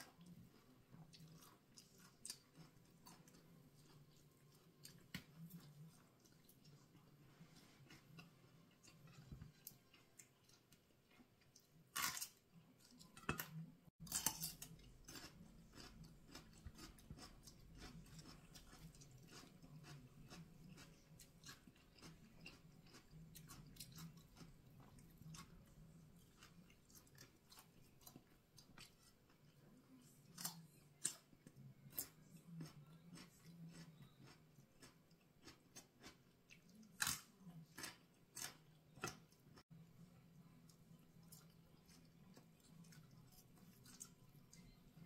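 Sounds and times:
chewing and crunching: 0:00.0 - 0:45.0.

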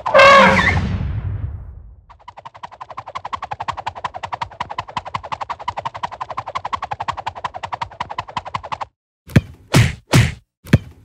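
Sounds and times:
rapid wood block clicking: 0:02.1 - 0:08.9.

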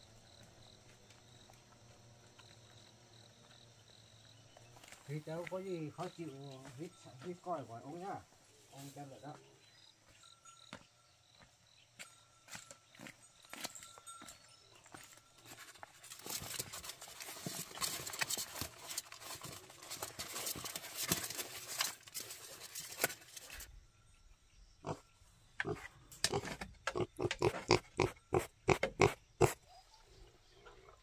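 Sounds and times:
pigs grunting: 0:24.8 - 0:29.7.

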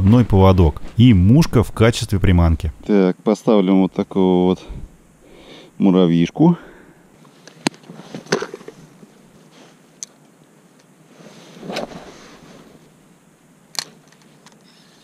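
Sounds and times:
brief rustle: 0:11.2 - 0:12.8.

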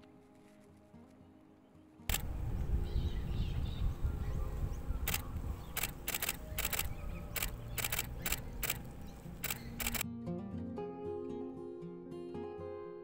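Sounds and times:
camera shutter clicks: 0:02.1 - 0:02.5, 0:05.0 - 0:10.0.

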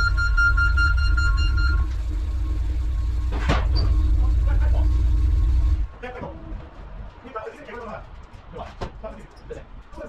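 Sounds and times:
high held tone: 0:00.0 - 0:05.8
truck engine rumbling: 0:00.0 - 0:08.4
sharp clunk: 0:03.3 - 0:04.0.

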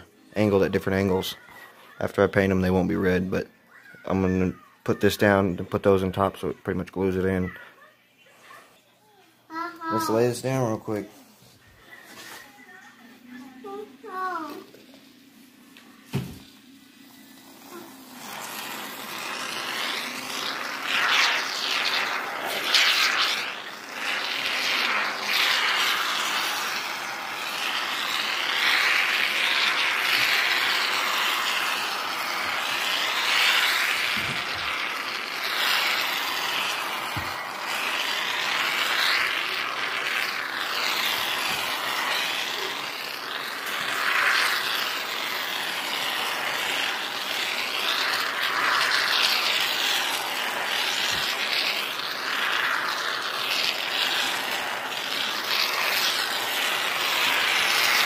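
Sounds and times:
aerosol can hissing: 0:16.0 - 0:58.0.

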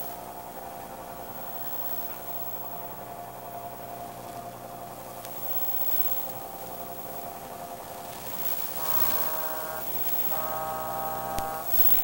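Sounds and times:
radio transmission buzzing static: 0:04.9 - 0:12.0.

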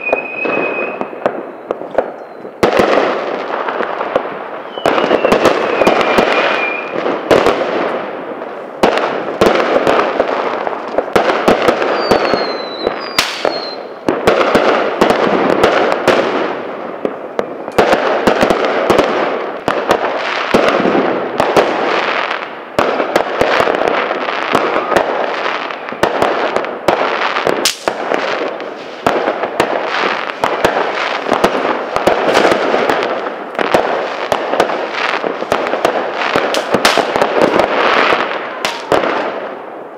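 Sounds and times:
falling firework whistles: 0:00.0 - 0:02.7, 0:04.6 - 0:07.0, 0:11.7 - 0:14.0
fireworks bangs and crackling: 0:00.0 - 0:39.9.

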